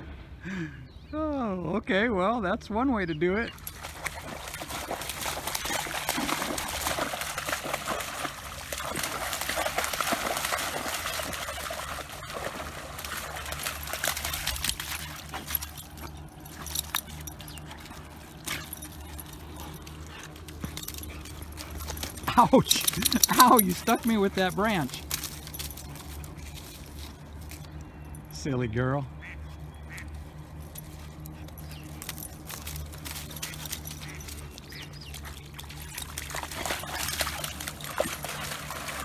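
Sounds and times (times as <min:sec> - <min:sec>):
water splashing and sloshing: 0:03.5 - 0:27.6, 0:29.9 - 0:39.0
dog stepping on stones: 0:12.4 - 0:27.7, 0:30.6 - 0:39.0.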